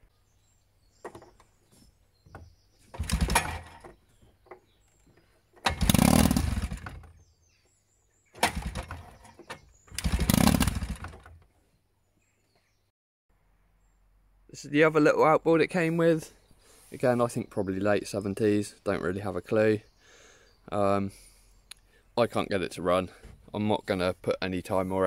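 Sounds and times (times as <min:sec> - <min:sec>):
pull starter cord: 0:02.9 - 0:03.9, 0:05.6 - 0:07.2, 0:08.4 - 0:11.4.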